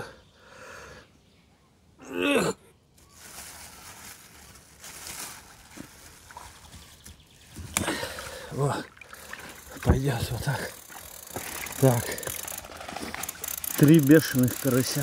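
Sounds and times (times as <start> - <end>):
grunt of effort: 2.0 - 2.7, 7.8 - 9.0
pond water sloshing and splashing: 3.2 - 14.4.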